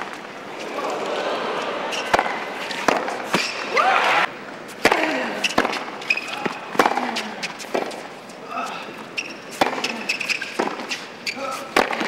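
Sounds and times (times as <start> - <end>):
tennis ball bouncing: 1.9 - 3.7, 4.8 - 8.0, 9.2 - 11.1, 11.8 - 12.0
rackets striking tennis ball: 1.9 - 3.8, 4.7 - 8.2, 9.2 - 12.0.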